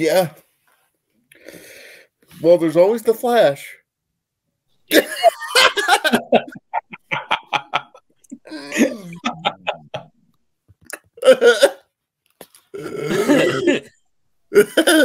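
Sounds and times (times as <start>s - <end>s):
man laughing hard: 4.9s - 10.2s.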